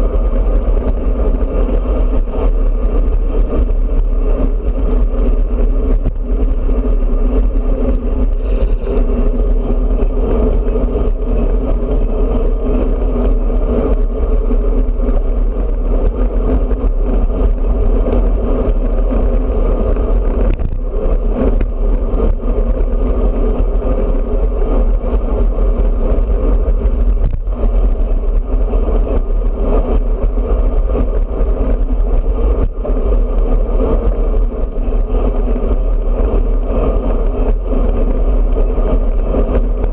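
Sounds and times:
tyres humming on asphalt: 0:00.0 - 0:39.9
wind rush on microphone: 0:00.0 - 0:39.9.

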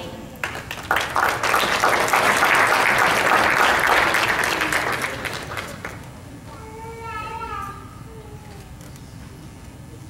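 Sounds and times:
audience applauding: 0:00.4 - 0:06.1.

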